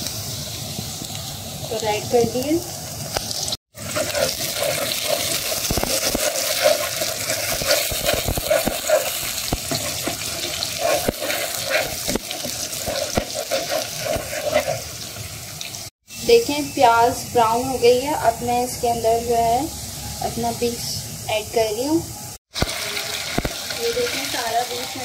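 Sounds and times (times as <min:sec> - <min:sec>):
onions sizzling in hot oil: 0:00.0 - 0:25.0
wooden spatula stirring: 0:03.8 - 0:15.1.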